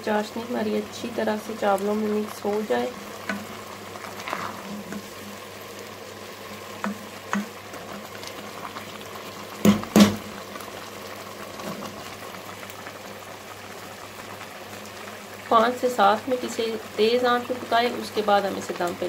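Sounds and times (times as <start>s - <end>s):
pot bubbling and hissing: 0.0s - 19.0s
sharp knocks: 9.6s - 10.2s.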